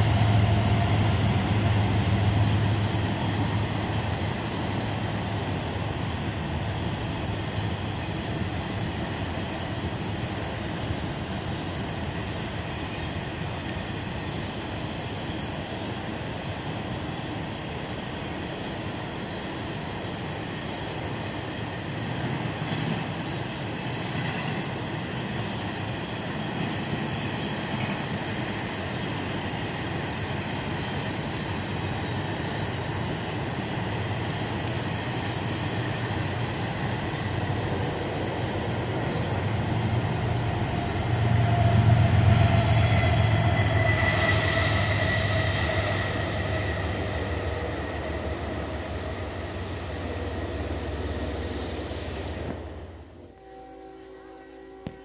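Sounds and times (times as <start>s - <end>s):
freight train rumbling on rails: 0.0s - 55.0s
thin steady whine: 40.4s - 55.0s.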